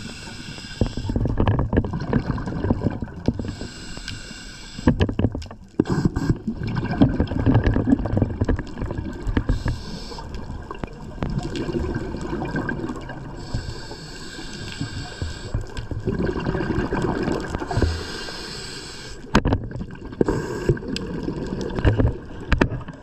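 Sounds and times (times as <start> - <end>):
scuba regulator hissing inhale: 0.0 - 1.2, 3.4 - 5.0, 5.8 - 6.5, 9.4 - 10.6, 13.2 - 15.8, 17.7 - 19.3, 20.2 - 20.9
exhaust bubbles gurgling: 1.0 - 3.4, 5.8 - 13.8, 15.4 - 18.2, 19.7 - 23.0.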